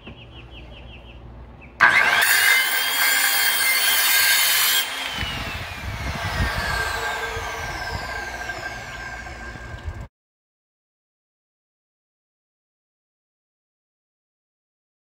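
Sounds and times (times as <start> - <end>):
circular saw cutting wood: 1.8 - 10.1.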